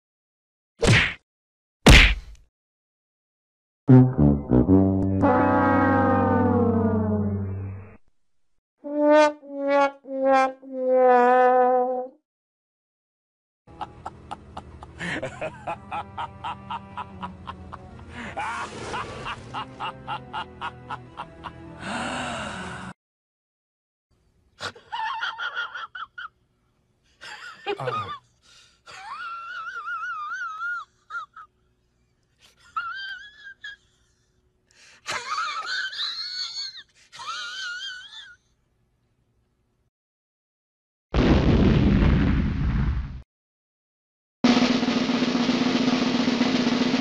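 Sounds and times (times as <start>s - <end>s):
high-pitched wobbling whine: 3.9s - 8.0s.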